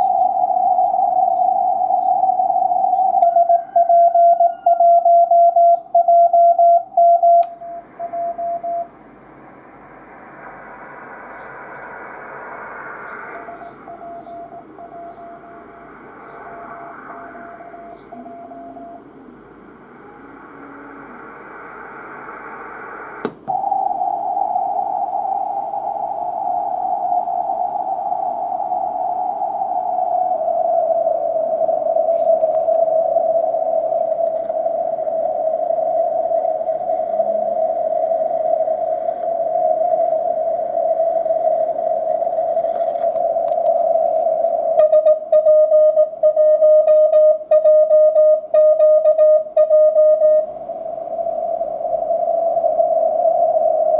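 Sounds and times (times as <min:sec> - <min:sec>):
radio band hiss: 0:00.0 - 0:03.7, 0:07.6 - 0:53.9
click: 0:43.5 - 0:43.8.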